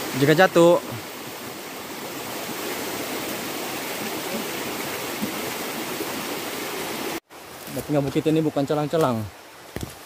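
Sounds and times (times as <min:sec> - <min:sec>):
river water rushing: 0:00.0 - 0:07.6.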